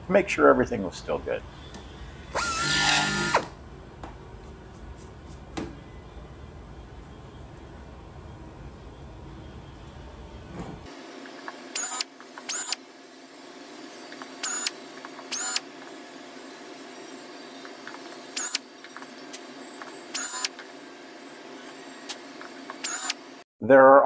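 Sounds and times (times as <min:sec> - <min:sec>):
pneumatic air drill bursts: 0:02.3 - 0:03.5, 0:11.7 - 0:12.8, 0:14.4 - 0:15.6, 0:18.3 - 0:18.6, 0:20.1 - 0:20.5, 0:22.1 - 0:23.2.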